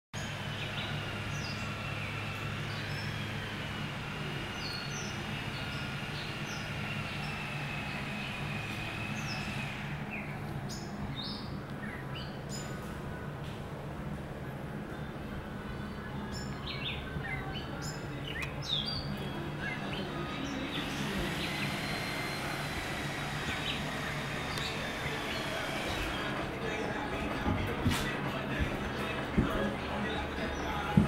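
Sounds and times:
birds chirping: 0:00.1 - 0:13.4, 0:14.4 - 0:31.0
steady low hum: 0:00.2 - 0:31.0.

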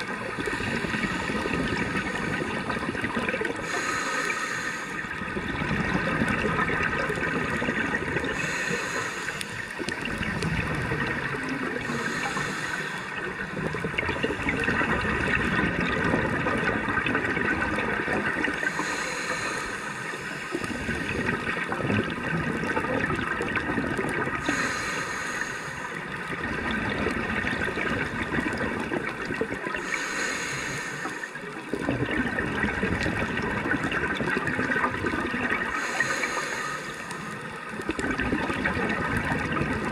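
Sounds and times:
exhaled air bubbling: 0:00.0 - 0:39.9
regulator inhale hiss: 0:00.4 - 0:02.4, 0:03.5 - 0:05.2, 0:08.2 - 0:10.1, 0:11.8 - 0:13.5, 0:18.5 - 0:21.6, 0:24.4 - 0:26.2, 0:29.7 - 0:31.6, 0:35.7 - 0:37.8.

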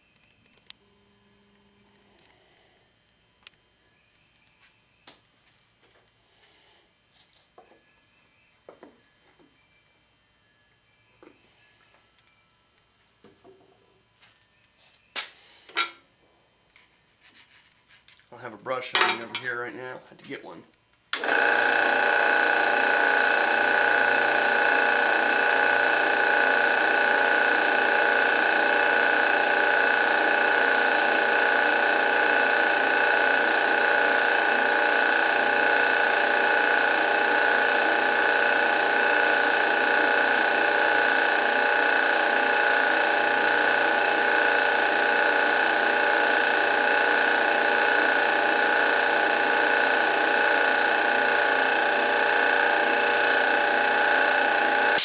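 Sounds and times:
drill press motor whine: 0:21.2 - 0:55.0.

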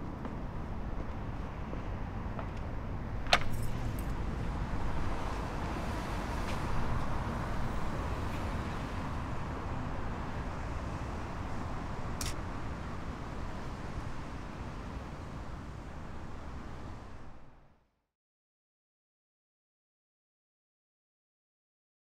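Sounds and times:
street traffic: 0:00.0 - 0:17.8
sharp click: 0:12.2 - 0:12.4.

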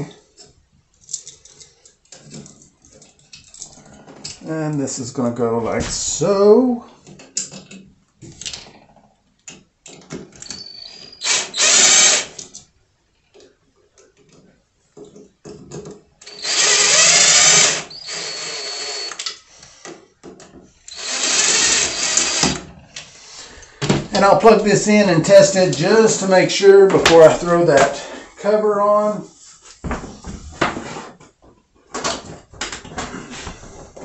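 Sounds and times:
small clicks and handling noise: 0:00.3 - 0:04.4
drill motor whirring: 0:10.4 - 0:12.4, 0:16.2 - 0:19.3, 0:20.9 - 0:22.7.

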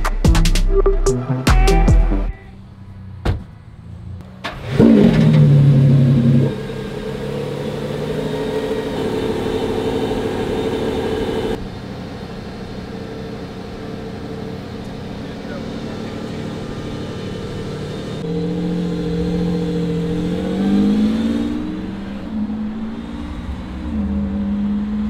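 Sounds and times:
car engine starting and idling: 0:00.0 - 0:25.0
thump: 0:03.2 - 0:03.5.

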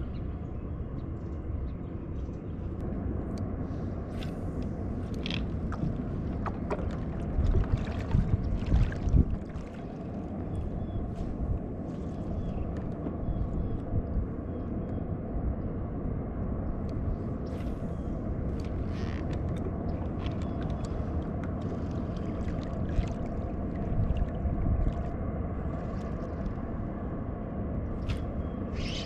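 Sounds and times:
wind: 0:00.0 - 0:29.0
water rumbling around kayak: 0:03.7 - 0:14.5, 0:16.1 - 0:28.4.

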